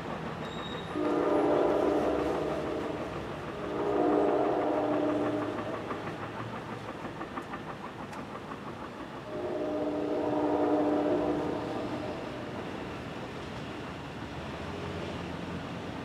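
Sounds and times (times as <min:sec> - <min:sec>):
train air horn blasts: 0:00.7 - 0:05.7, 0:09.3 - 0:12.6.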